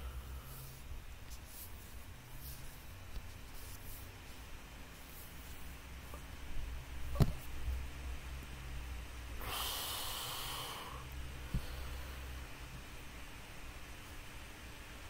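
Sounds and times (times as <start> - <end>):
low steady hum: 0.0 - 15.0
breathy exhale: 9.4 - 12.4.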